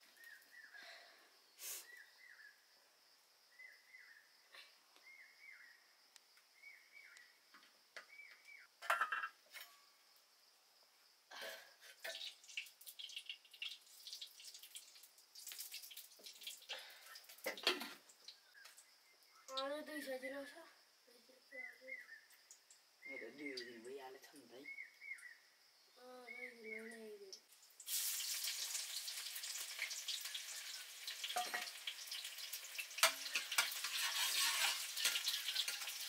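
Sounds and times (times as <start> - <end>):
small high chirping call: 3.5 - 4.3, 5.0 - 5.8, 6.6 - 7.4, 21.3 - 23.9, 24.6 - 27.4
utensils and dishes clinking: 31.3 - 31.8, 33.0 - 36.0.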